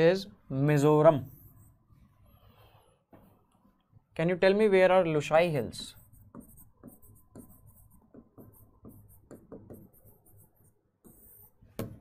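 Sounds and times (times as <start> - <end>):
stylus tapping and scratching on screen: 5.6 - 12.0.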